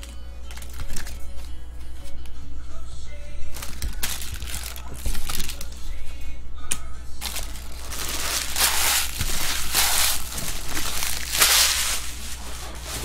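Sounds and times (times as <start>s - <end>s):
foil wrappers crinkling: 0.0s - 1.6s, 3.5s - 5.8s, 7.2s - 13.0s.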